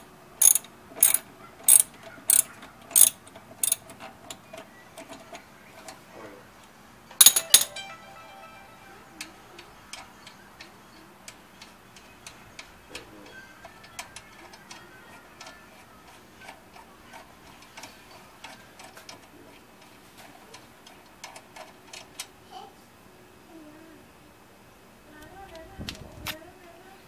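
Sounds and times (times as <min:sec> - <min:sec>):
ratchet wrench clicking: 0:00.4 - 0:03.9.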